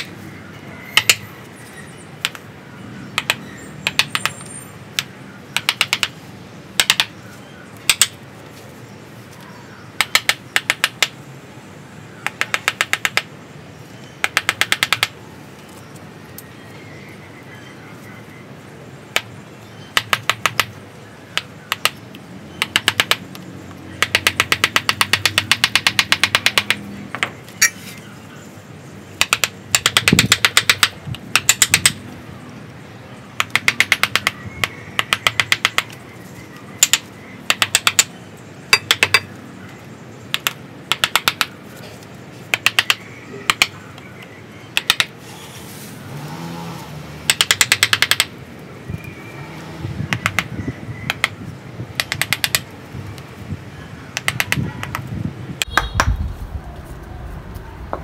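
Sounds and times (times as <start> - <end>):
wooden mallet tapping chisel: 1.0 - 1.2, 2.2 - 2.4, 3.1 - 6.2, 6.8 - 7.1, 7.9 - 8.2, 10.0 - 11.2, 12.2 - 13.3, 14.2 - 15.2, 19.9 - 22.0, 22.6 - 23.4, 24.0 - 27.4, 29.2 - 32.0, 33.4 - 36.0, 36.8 - 38.1, 38.7 - 39.3, 40.3 - 41.6, 42.5 - 43.8, 44.7 - 45.1, 47.3 - 48.3, 50.1 - 52.7, 54.2 - 55.0, 55.6 - 56.2.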